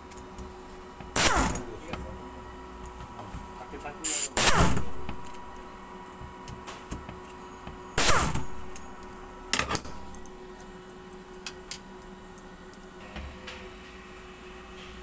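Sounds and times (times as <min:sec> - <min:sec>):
pneumatic wrench whirring: 0:01.1 - 0:01.6, 0:04.1 - 0:05.4, 0:08.0 - 0:08.8.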